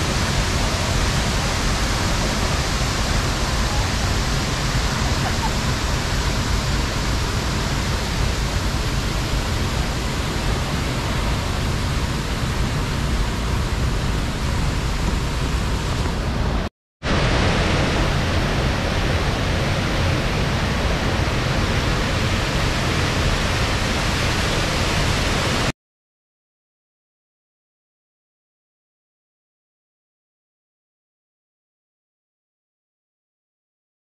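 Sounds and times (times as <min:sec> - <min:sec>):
waterfall and river rapids rushing: 0:00.0 - 0:25.7.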